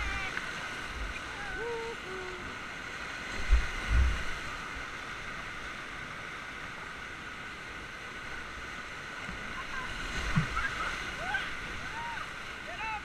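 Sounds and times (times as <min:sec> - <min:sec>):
whitewater rapids rushing: 0:09.1 - 0:13.0.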